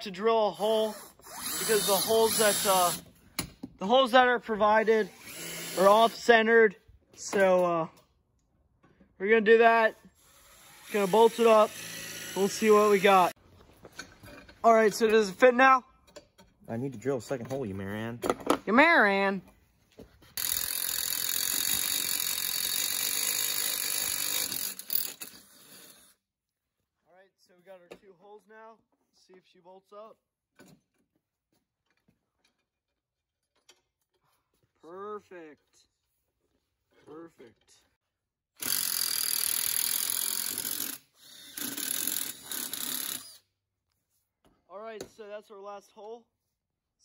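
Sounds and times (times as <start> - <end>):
power drill boring metal: 0.5 - 3.1, 4.8 - 6.5, 10.1 - 13.4, 20.4 - 26.1, 38.6 - 43.4.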